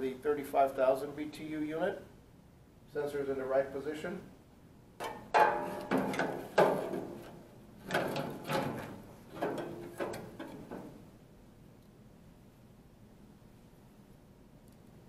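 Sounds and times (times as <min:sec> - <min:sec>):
metal clunking and scraping: 0:05.0 - 0:11.1.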